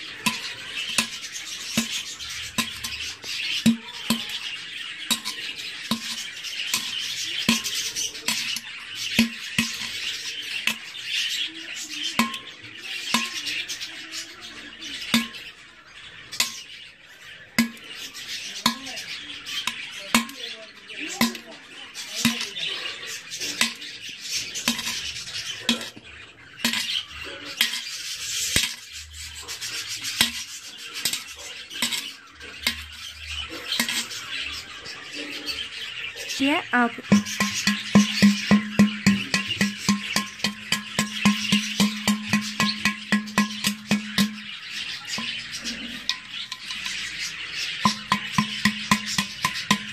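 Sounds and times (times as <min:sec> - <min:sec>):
metal tool scraping clay pot: 0:00.0 - 0:12.5, 0:22.0 - 0:34.7, 0:37.0 - 0:49.9.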